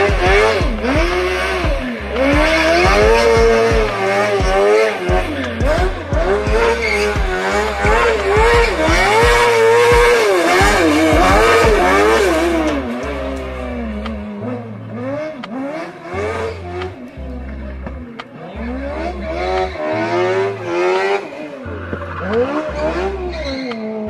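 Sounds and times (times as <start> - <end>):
race car engine revving: 0.0 - 24.0.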